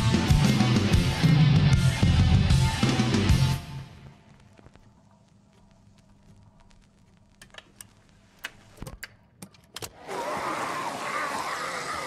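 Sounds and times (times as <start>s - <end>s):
record clicks and pops: 4.0s - 10.0s.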